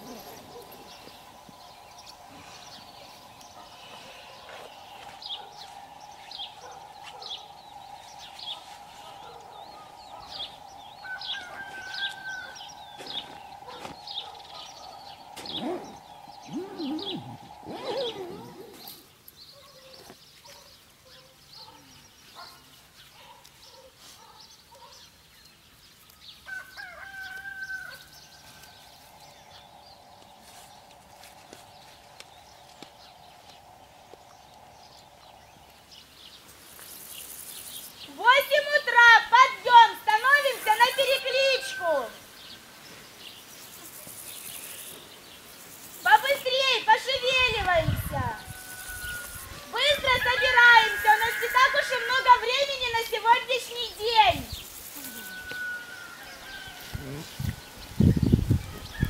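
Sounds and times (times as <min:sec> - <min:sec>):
steady hum: 0:00.0 - 0:19.2
small birds chirping: 0:00.0 - 0:59.0
rooster crowing: 0:06.4 - 0:18.7, 0:26.5 - 0:29.0, 0:40.7 - 0:42.2, 0:47.8 - 0:52.7, 0:55.0 - 0:57.4.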